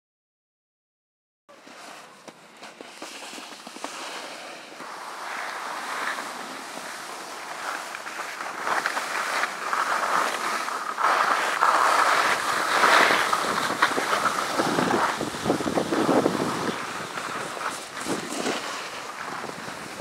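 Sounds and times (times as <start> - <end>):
snowboard scraping over snow: 1.5 - 20.0.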